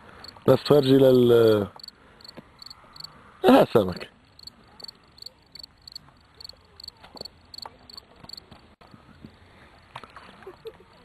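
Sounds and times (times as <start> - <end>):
insect chirping: 1.7 - 3.2, 4.2 - 8.4.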